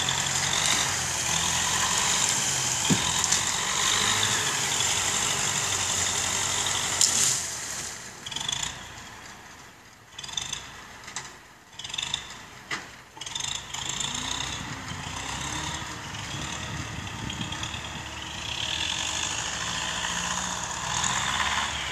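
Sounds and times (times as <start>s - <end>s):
tractor diesel engine running: 0.0s - 21.9s
sharp knocks: 2.8s - 3.2s.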